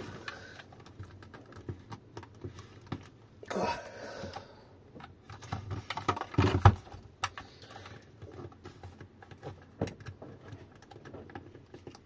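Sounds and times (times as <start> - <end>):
plastic casing clicking and knocking: 5.0 - 12.0.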